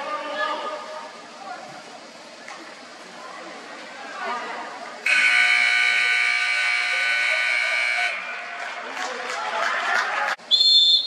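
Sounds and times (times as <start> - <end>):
referee's whistle: 10.5 - 11.0.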